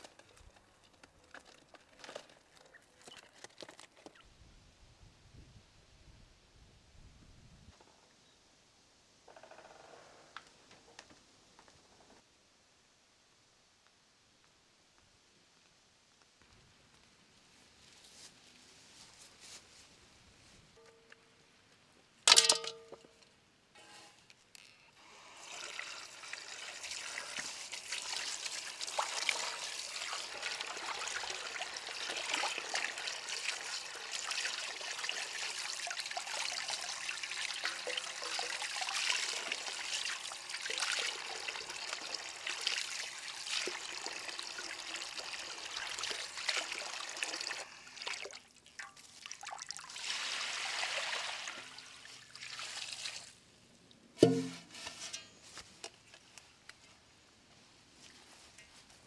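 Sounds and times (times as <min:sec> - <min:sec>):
metal tray clanging on basin: 0:22.3 - 0:23.0, 0:54.2 - 0:55.4
hose water splashing into basin: 0:25.0 - 0:53.4.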